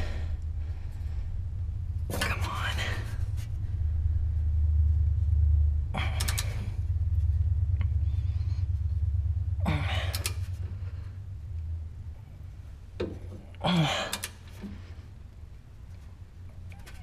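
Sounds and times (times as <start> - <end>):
low steady rumble: 0.0 - 17.0
man exhaling with effort: 9.6 - 11.2, 13.5 - 14.9.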